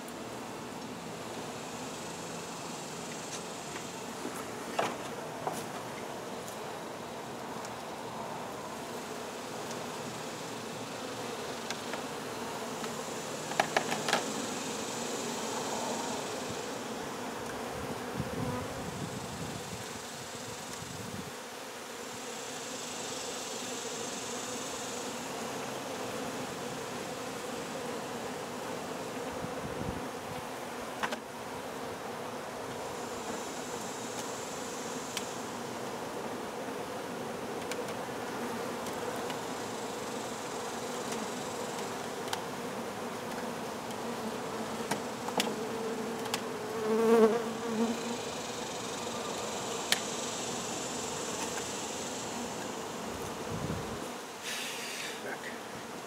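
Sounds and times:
bees buzzing: 0.0 - 56.0.

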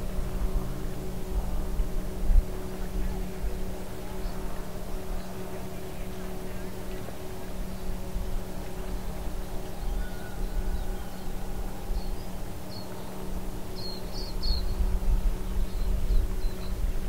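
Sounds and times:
distant boat engine humming: 0.0 - 17.0
bird chirps: 9.8 - 14.8.

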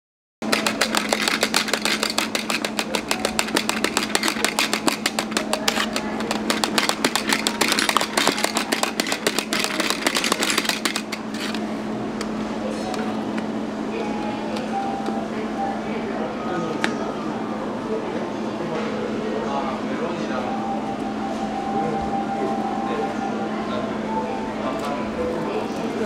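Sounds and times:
rapid mechanical clatter: 0.4 - 11.7
steady low hum: 0.4 - 26.0.

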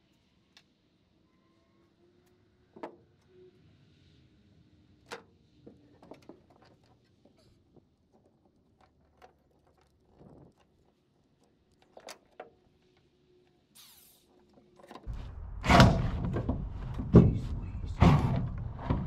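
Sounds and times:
loud thuds and knocks: 15.1 - 19.0
low rumble: 15.1 - 19.0.

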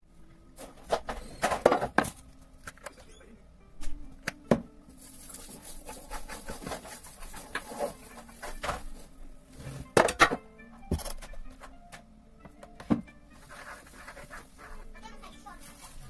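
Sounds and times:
hands rubbing baking pan: 5.1 - 9.0, 13.4 - 15.0.

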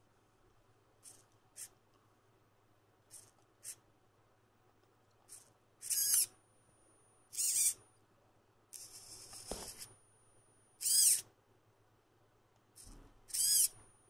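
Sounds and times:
servo motors whining: 5.3 - 6.3, 7.4 - 7.8, 10.8 - 11.2, 13.3 - 13.7.

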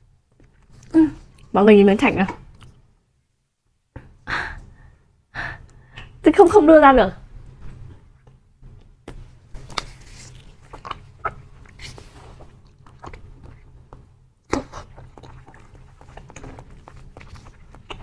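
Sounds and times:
low steady hum: 0.0 - 18.0
chewing with wet smacks: 12.4 - 18.0
sucking jelly from a tube: 14.5 - 18.0.

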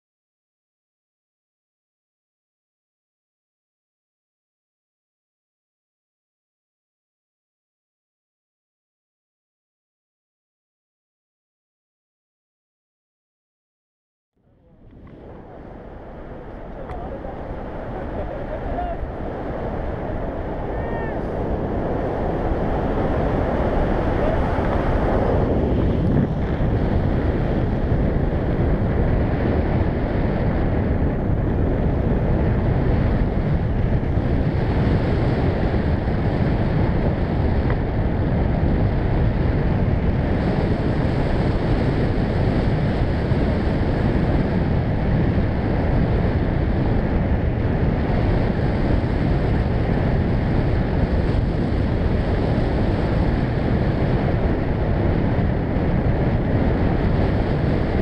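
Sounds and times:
wind rushing over microphone: 14.4 - 58.0.

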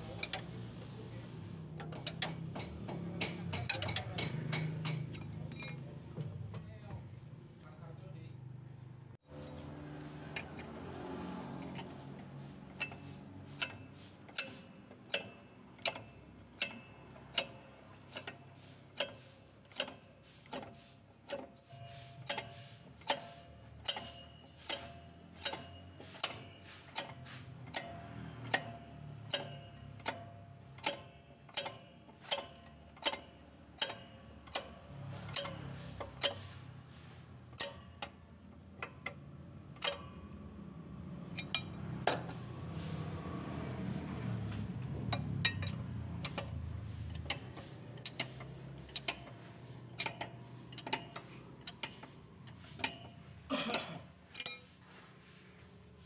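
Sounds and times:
sharp metallic clicks: 44.5 - 53.3.

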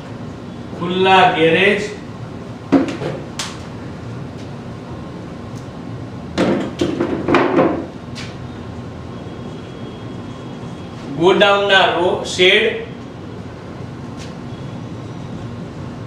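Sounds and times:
marker knocking on whiteboard: 2.7 - 3.2, 6.4 - 7.9.

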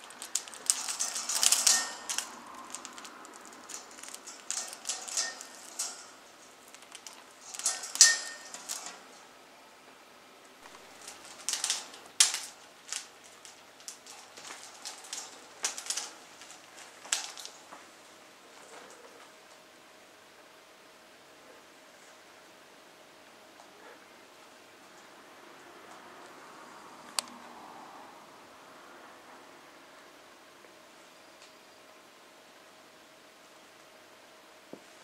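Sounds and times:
metal chain clinking and rattling: 0.0 - 9.2, 10.6 - 17.7.

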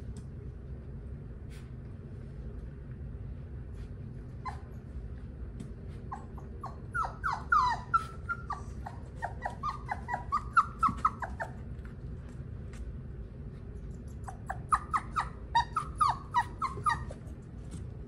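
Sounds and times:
steady low hum: 0.0 - 18.0
puppy whimpering and yelping: 4.4 - 4.8, 6.0 - 11.7, 14.1 - 17.4.

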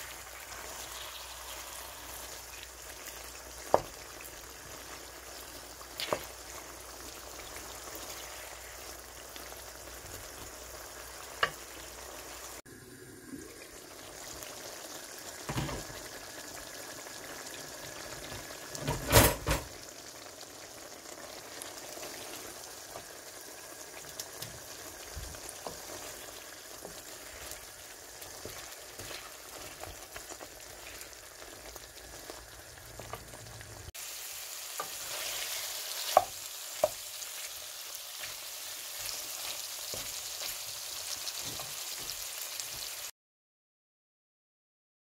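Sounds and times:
chicken sizzling in a pan: 0.0 - 43.1.

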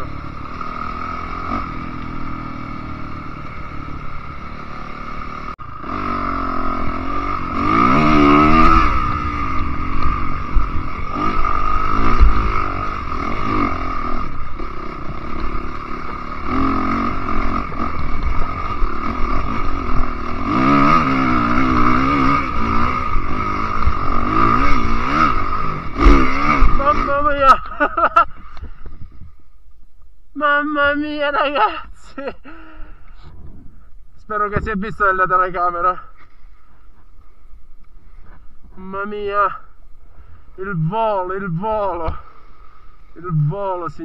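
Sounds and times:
dirt bike engine revving: 0.0 - 29.2, 38.3 - 44.0.

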